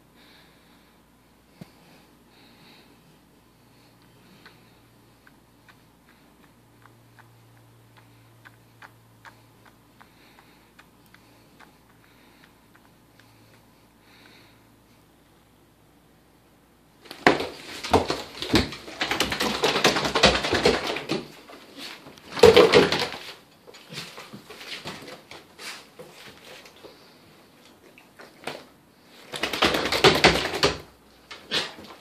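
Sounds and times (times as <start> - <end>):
dog shaking head ears flapping: 17.2 - 21.3, 22.3 - 23.3, 29.3 - 30.9.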